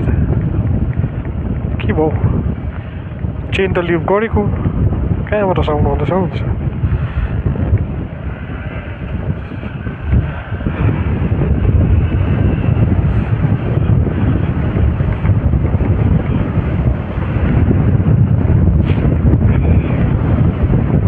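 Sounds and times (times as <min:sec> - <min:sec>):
wind rush on microphone: 0:00.0 - 0:21.0
motorcycle engine running: 0:06.6 - 0:21.0.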